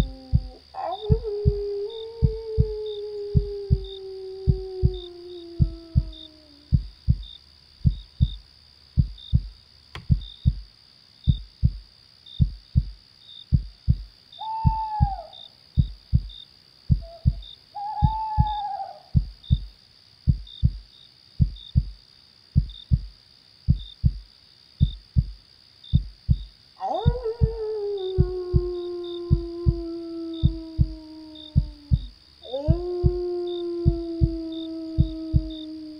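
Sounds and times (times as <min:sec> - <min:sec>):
slow heartbeat thumps: 0:00.0 - 0:08.4, 0:09.0 - 0:10.7, 0:11.3 - 0:19.7, 0:20.3 - 0:22.0, 0:22.6 - 0:35.9
cricket chorus: 0:00.0 - 0:35.9
owl hooting: 0:14.4 - 0:15.4, 0:17.0 - 0:19.3.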